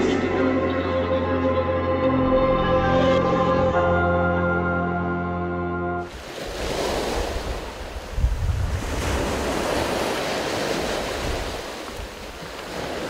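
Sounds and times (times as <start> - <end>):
sea waves washing on shore: 6.0 - 13.0
wind buffeting microphone: 6.2 - 13.0.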